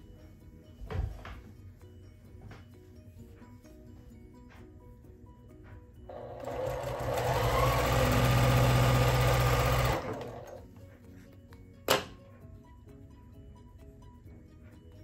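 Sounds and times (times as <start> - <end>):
soft background music: 0.0 - 15.0
sewing machine stitching: 6.1 - 10.6.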